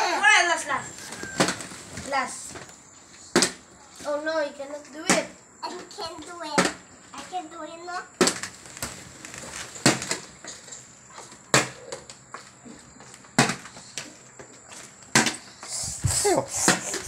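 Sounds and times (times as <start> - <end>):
plastic bottle clacking on tiles: 8.2 - 12.2.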